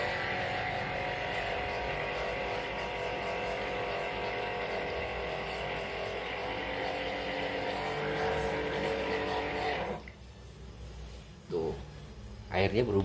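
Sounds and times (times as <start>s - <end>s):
electric motor whining in water: 0.0s - 10.2s.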